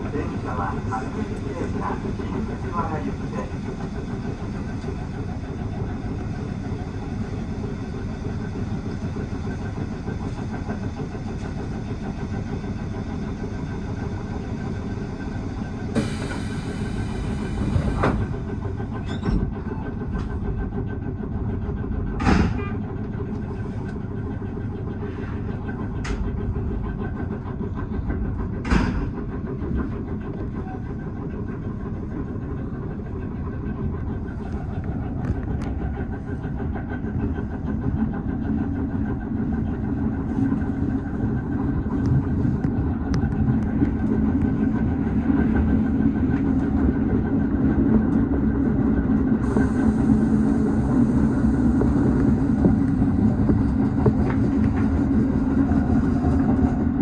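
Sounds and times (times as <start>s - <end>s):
train wheels and motors rumbling: 0.0s - 57.0s.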